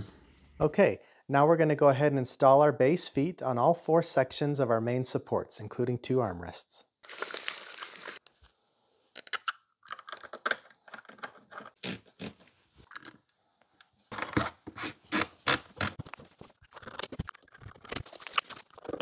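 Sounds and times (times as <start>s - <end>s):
plastic packaging rustling and tearing: 7.0s - 8.2s, 15.1s - 19.0s.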